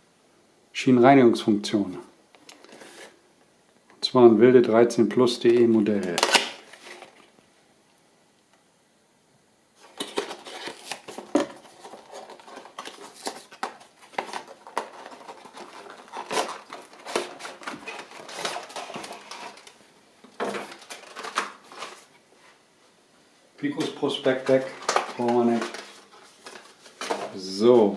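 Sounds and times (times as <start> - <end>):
cardboard and paper rustling: 5.4 - 7.3, 9.8 - 22.6, 23.9 - 27.9.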